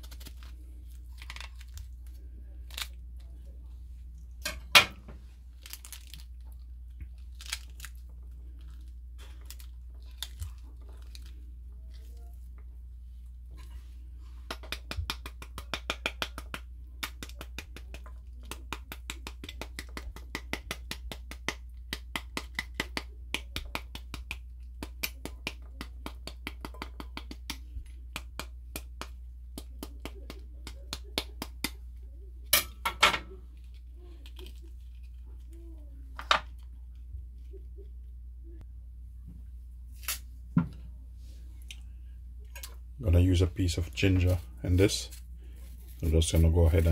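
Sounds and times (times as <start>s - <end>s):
knife tapping pomegranate: 14.4s - 31.8s.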